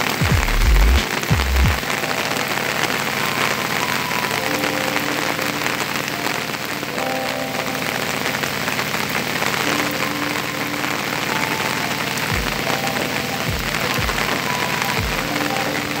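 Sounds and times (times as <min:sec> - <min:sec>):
faint steady tones: 0:00.0 - 0:16.0
heavy rain falling: 0:00.0 - 0:16.0.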